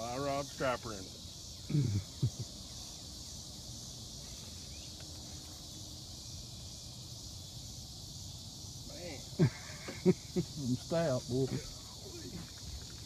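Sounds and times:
insects chorus: 0:00.0 - 0:13.0.

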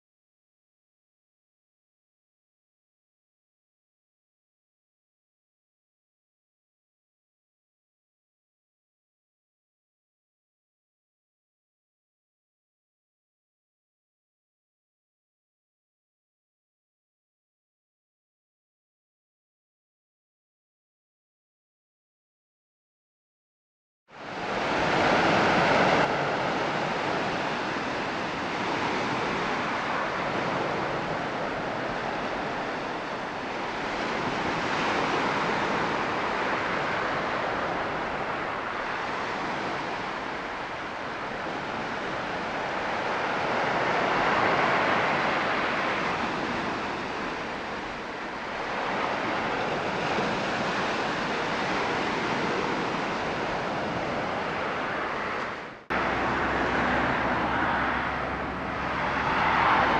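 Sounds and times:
ocean surf breaking: 0:24.1 - 0:59.9.

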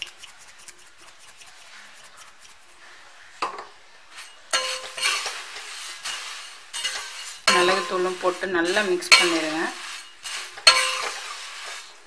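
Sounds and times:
spoon scraping metal pan: 0:04.1 - 0:12.0.

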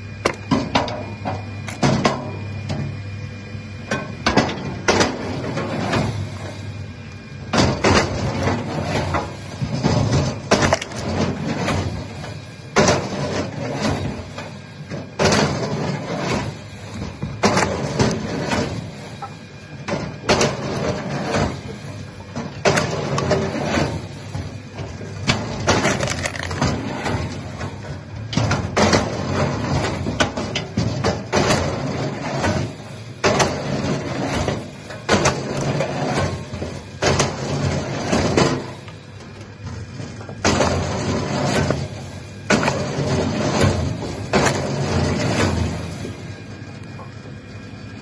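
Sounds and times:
wood chipper drone: 0:00.0 - 0:48.0
wood cracking and crunching: 0:10.2 - 0:11.4, 0:25.2 - 0:26.9.

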